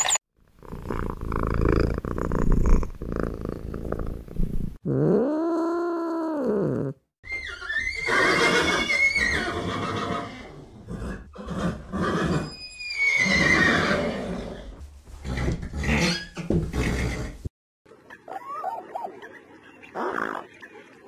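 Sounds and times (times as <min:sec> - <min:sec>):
horse whinnying: 0:07.2 - 0:17.4.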